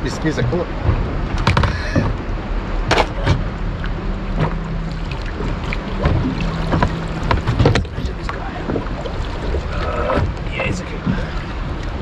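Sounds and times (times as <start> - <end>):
small boat engine rumble: 0.0 - 12.0
wind buffeting microphone: 0.0 - 12.0
gear knocking and clattering: 5.4 - 8.8.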